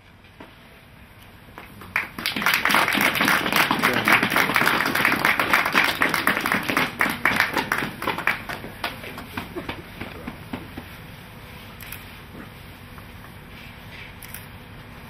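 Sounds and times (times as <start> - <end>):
small group applauding: 1.6 - 11.0.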